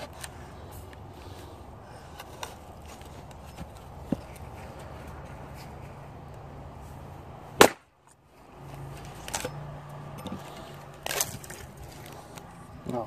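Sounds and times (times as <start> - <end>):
axe striking wood: 7.6 - 7.9.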